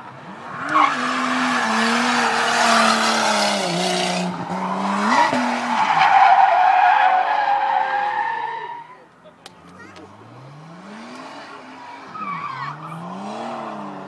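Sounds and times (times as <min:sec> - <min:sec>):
car engine at high revs: 0:00.0 - 0:06.4, 0:09.6 - 0:14.0.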